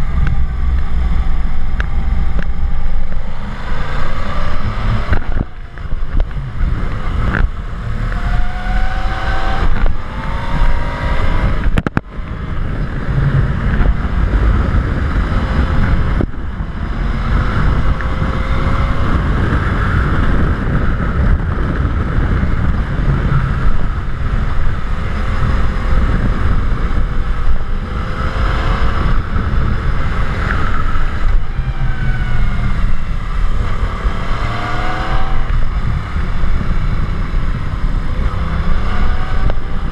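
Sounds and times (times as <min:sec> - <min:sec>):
motorcycle engine accelerating: 0:00.0 - 0:39.9
wind rumble on microphone: 0:00.0 - 0:39.9.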